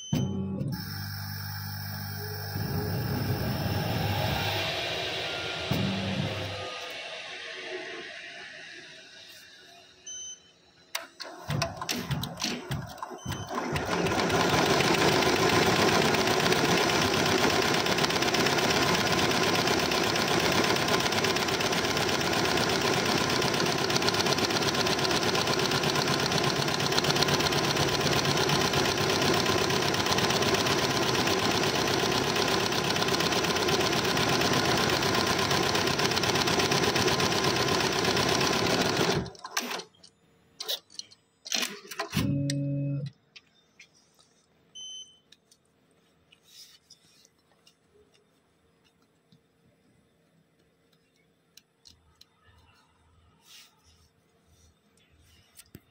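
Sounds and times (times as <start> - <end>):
brief low tone: 0.0 - 0.8, 2.2 - 7.1, 42.2 - 43.1
embroidery machine stitching: 11.2 - 39.9.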